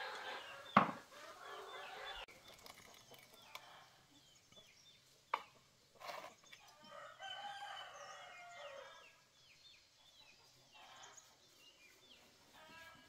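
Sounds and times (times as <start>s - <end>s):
chickens clucking: 0.0s - 2.3s.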